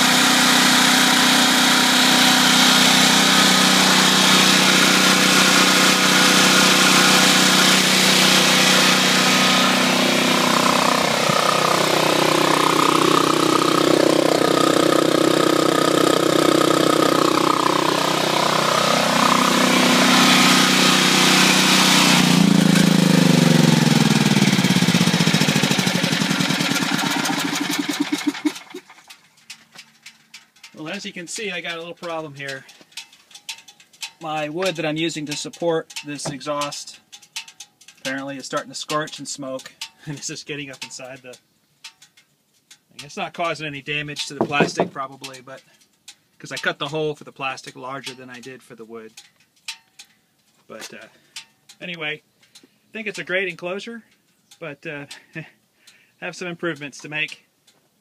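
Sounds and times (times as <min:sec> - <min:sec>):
generator engine running: 0:00.0 - 0:34.8.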